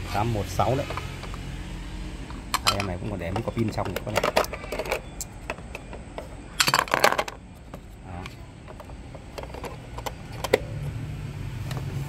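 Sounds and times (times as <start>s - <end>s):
battery clicks and clatter: 2.6s - 7.9s.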